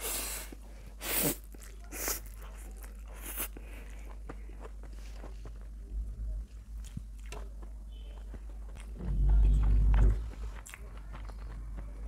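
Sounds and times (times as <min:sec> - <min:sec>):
mouth noise eating noodles: 0:00.0 - 0:05.8
chewing: 0:01.2 - 0:12.0.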